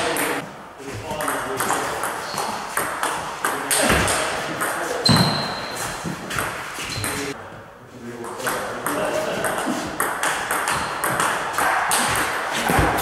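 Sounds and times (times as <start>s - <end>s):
ball bouncing on table: 9.4s - 13.0s.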